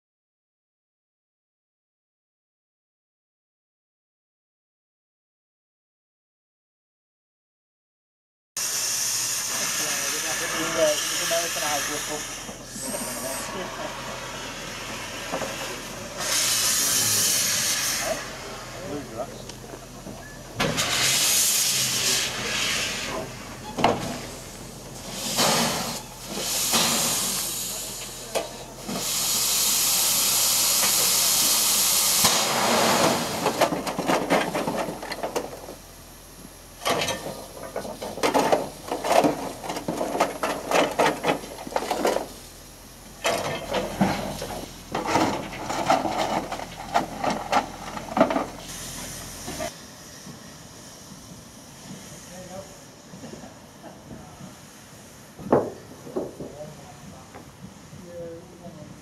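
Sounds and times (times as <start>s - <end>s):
steam locomotive hissing: 8.6s - 59.0s
metal clanks and scrapes: 22.0s - 24.4s, 25.0s - 27.5s, 36.8s - 42.4s, 43.2s - 49.7s.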